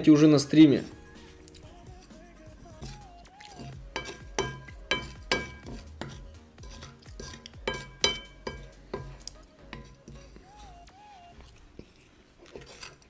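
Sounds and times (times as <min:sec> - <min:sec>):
wooden spoon clinking on glass plate: 0:03.6 - 0:09.1.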